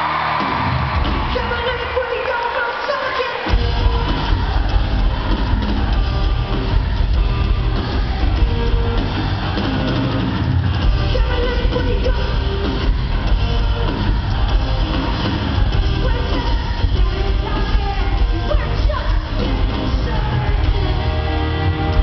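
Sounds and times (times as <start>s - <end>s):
live rock band with singing: 0.1s - 22.0s.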